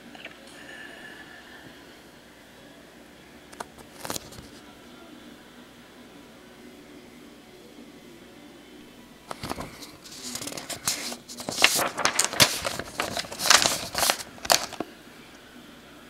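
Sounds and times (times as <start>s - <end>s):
paper rustling and crinkling: 3.5s - 4.6s, 9.3s - 14.9s.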